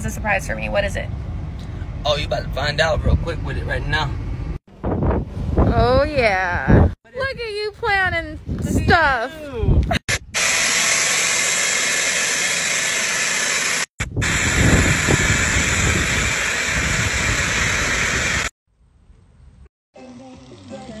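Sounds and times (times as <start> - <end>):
loud rushing air: 10.0 - 18.5.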